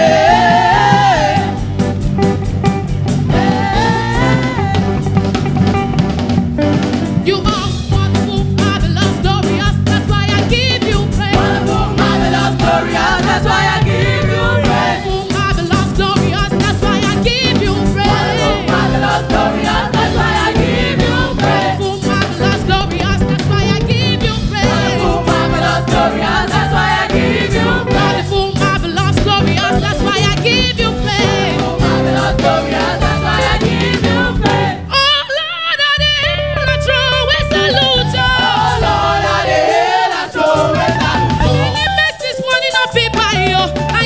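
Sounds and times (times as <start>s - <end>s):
choir singing: 0.0s - 1.7s, 3.3s - 5.0s, 11.2s - 15.4s, 16.9s - 22.8s, 24.2s - 28.6s, 31.1s - 34.9s, 37.8s - 42.3s
drum kit: 0.0s - 35.1s, 36.7s - 44.0s
keyboard: 0.0s - 35.2s
bass: 0.0s - 44.0s.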